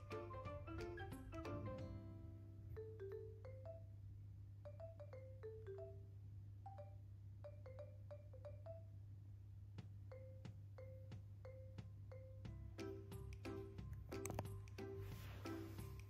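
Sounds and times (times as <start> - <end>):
marimba-like mallet notes: 0.0 - 3.9, 4.7 - 6.0, 10.1 - 16.0.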